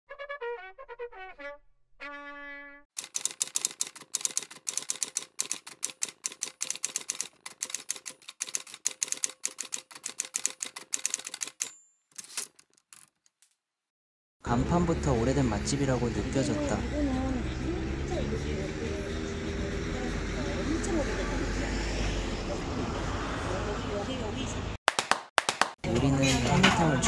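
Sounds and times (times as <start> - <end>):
scattered clicks: 3.0 - 13.1
typewriter key clacks: 3.0 - 13.2.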